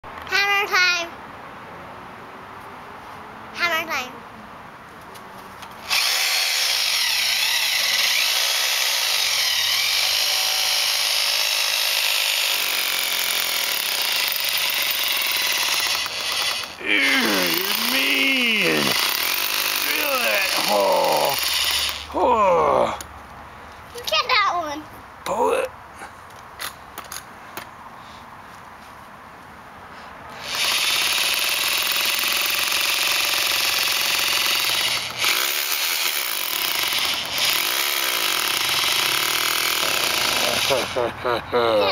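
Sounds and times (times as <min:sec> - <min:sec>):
hammer drill drilling into concrete: 0:05.8 - 0:22.1, 0:30.4 - 0:40.9.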